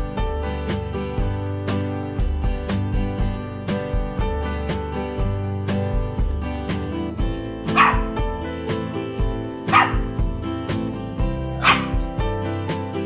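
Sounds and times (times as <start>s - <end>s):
background music with steady beat: 0.0s - 13.0s
puppy barking: 7.7s - 8.2s, 9.7s - 10.2s, 11.5s - 12.1s.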